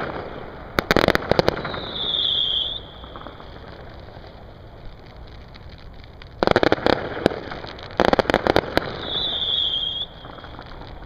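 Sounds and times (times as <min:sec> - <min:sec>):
fireworks crackling: 0:00.0 - 0:11.0
high steady whistle: 0:01.6 - 0:03.4, 0:09.0 - 0:10.5.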